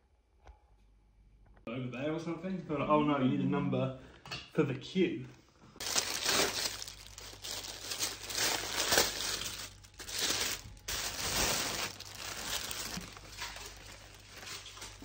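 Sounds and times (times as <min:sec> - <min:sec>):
tissue paper rustling: 0:05.8 - 0:15.0.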